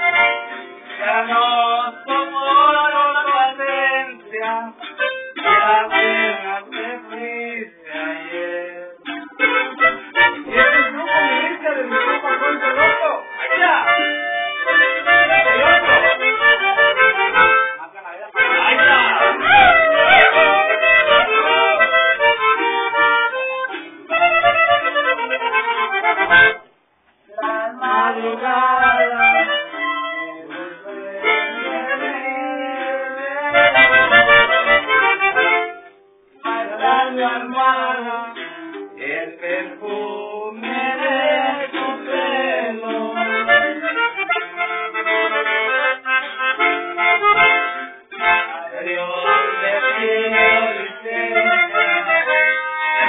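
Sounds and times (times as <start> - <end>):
accordion: 0.0 - 53.0
band playing a song: 10.2 - 17.6, 18.4 - 26.6.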